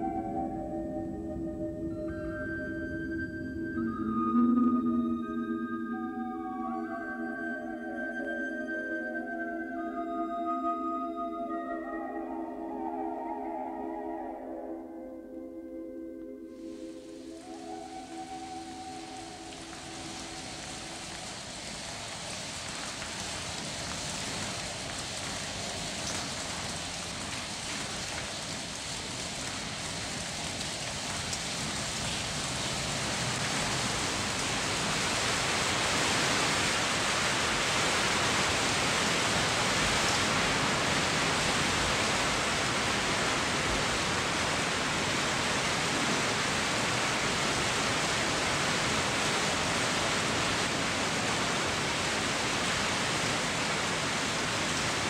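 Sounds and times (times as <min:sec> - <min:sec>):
water rushing: 0:16.7 - 0:55.0.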